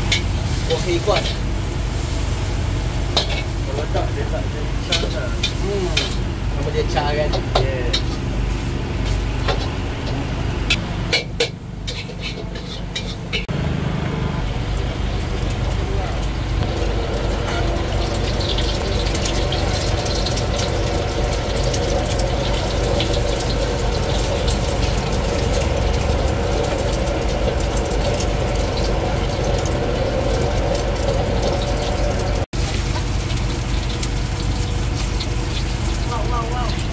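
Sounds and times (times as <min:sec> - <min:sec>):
egg frying in hot oil: 0:00.0 - 0:10.8, 0:11.4 - 0:13.6, 0:14.5 - 0:36.9
gas burner rumble: 0:00.0 - 0:36.9
metal spatula scraping a wok: 0:03.1 - 0:03.6, 0:07.9 - 0:13.5.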